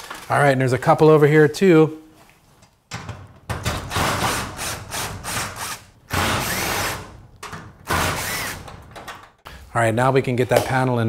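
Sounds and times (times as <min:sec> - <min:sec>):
cordless drill running: 0:04.6 - 0:07.0, 0:08.0 - 0:08.6.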